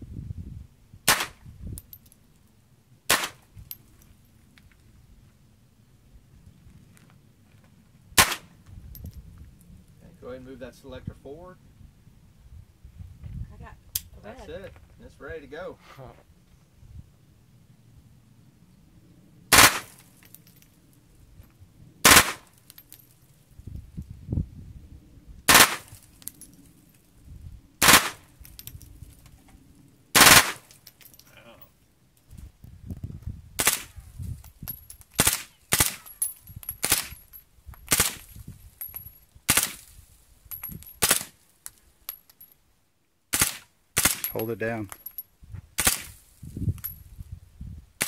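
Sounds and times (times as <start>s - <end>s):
loud rifle shots: 3.1s - 3.4s, 8.2s - 8.4s, 19.5s - 19.9s, 22.0s - 22.5s, 25.5s - 25.9s, 27.8s - 28.2s, 30.2s - 30.6s.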